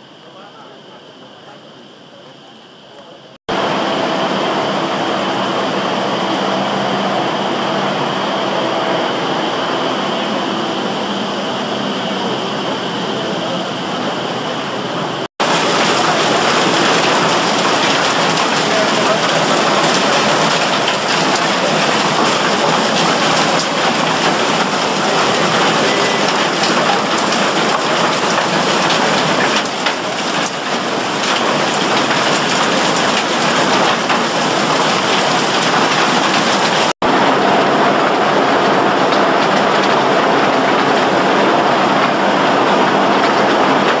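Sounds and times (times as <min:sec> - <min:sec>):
machinery running: 0:00.0 - 0:44.0
crushed ore clattering off conveyor: 0:15.4 - 0:36.9.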